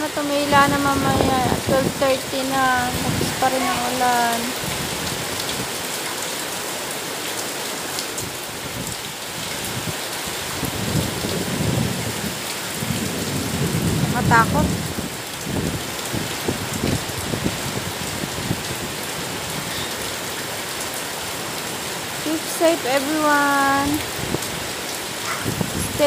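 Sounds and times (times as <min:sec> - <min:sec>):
thunder rumbling: 0:00.0 - 0:05.1, 0:10.6 - 0:19.7
heavy rain pouring: 0:00.0 - 0:26.0.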